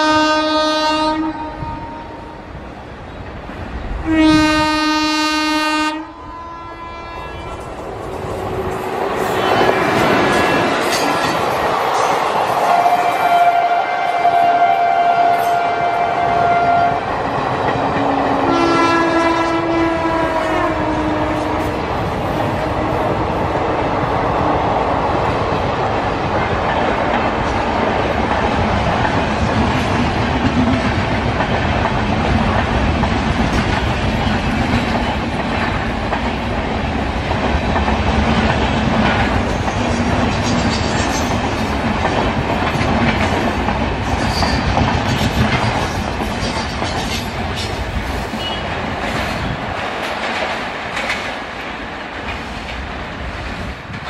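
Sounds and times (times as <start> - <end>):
electric locomotive horn: 0.0 - 2.4, 4.0 - 7.8, 12.7 - 17.1, 18.1 - 21.8
train horn dropping in pitch: 0.0 - 2.4, 4.0 - 7.8, 12.7 - 17.1, 18.1 - 21.8
train coaches rumbling past: 0.0 - 54.0
wheels clattering over rail joints: 37.7 - 51.6.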